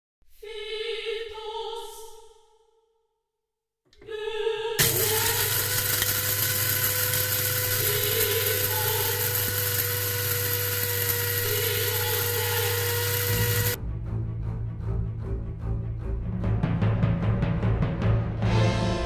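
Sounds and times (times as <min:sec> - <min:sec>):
electric coffee grinder running: 0:04.8 - 0:13.8.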